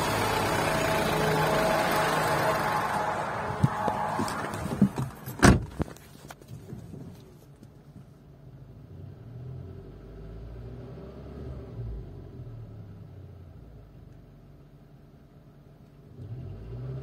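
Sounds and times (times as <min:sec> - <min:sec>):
car door shutting: 0:03.5 - 0:06.0.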